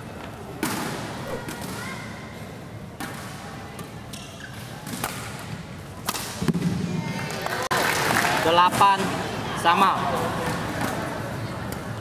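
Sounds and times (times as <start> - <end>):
sports hall hum: 0.0 - 12.0.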